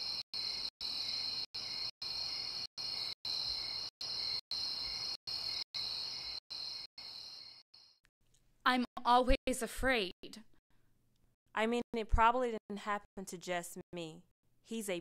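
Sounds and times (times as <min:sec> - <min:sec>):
crickets trilling: 0:00.0 - 0:08.0.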